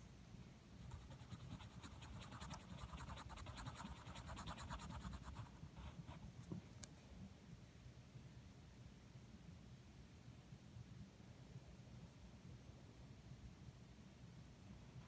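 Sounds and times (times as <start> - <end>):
pencil scribbling on paper: 0.8 - 6.2.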